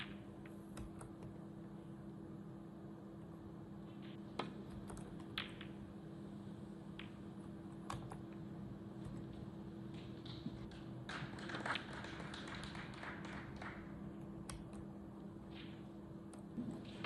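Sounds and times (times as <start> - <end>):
faint low hum: 0.0 - 17.0
snooker balls clicking: 4.3 - 6.0, 6.8 - 14.9.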